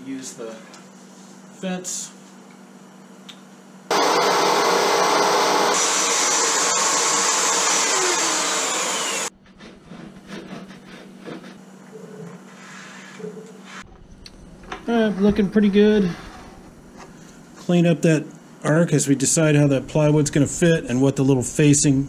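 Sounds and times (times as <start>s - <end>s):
electric router cutting wood: 3.9s - 9.3s
hand tools scraping wood: 5.7s - 11.6s.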